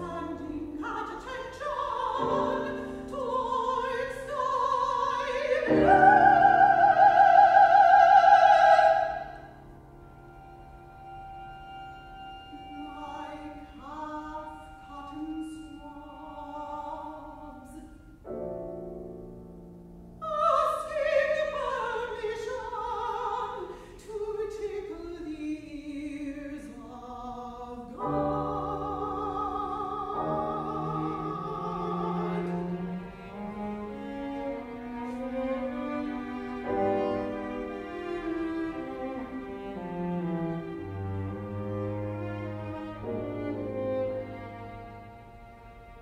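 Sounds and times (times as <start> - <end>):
piano violin and cello: 0.0 - 46.0
soprano singing: 0.0 - 46.0.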